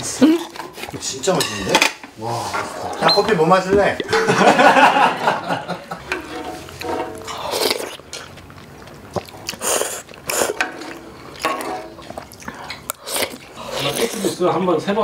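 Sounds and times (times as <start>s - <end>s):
chewing: 0.2s - 1.2s, 6.3s - 14.5s
noodles being slurped: 6.6s - 14.6s.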